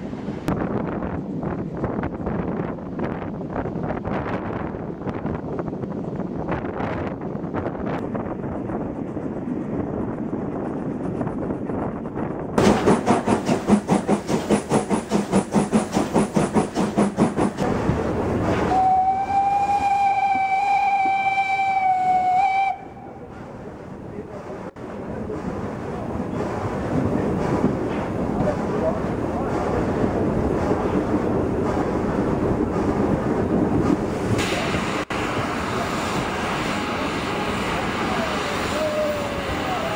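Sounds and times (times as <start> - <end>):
wind rumble on microphone: 0.0 - 12.6, 17.6 - 39.9
steam train rolling slowly: 0.0 - 39.9
steam hiss: 12.6 - 17.6, 34.1 - 39.9
steam locomotive exhaust chuffs: 12.6 - 23.5
steam whistle: 18.7 - 23.1.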